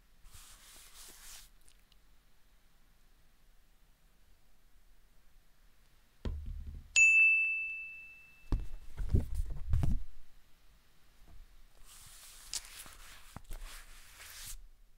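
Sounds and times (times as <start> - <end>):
soft hiss: 0.0 - 15.0
low thumps: 6.2 - 7.0
bright bell ding: 7.0 - 8.6.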